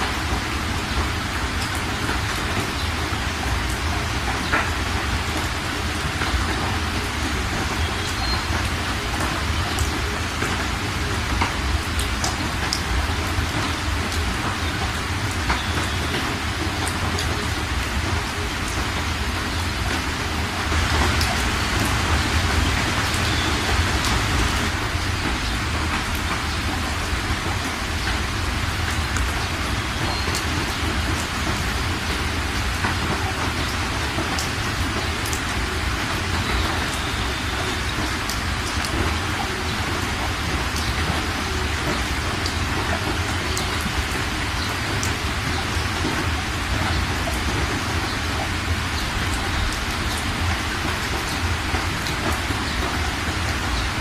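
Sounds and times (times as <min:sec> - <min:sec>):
floodwater rushing and splashing: 0:00.0 - 0:54.0.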